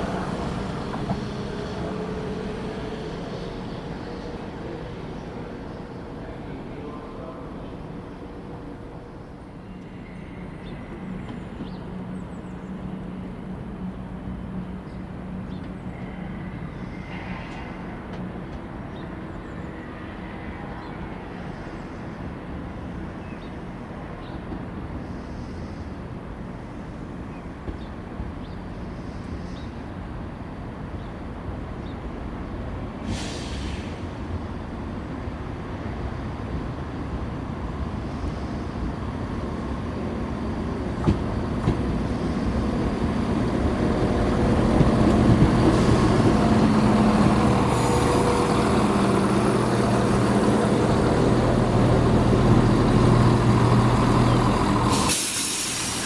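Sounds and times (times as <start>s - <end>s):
rail rumble: 0.0s - 56.0s
train engine drone: 0.0s - 56.0s
air hiss: 33.0s - 34.1s, 54.9s - 56.0s.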